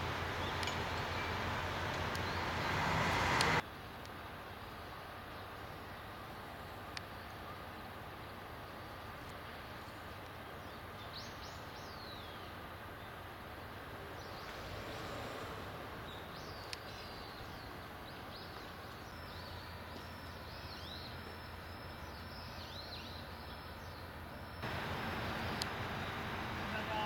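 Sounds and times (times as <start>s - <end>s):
small birds chirping: 0.0s - 3.6s, 14.1s - 27.0s.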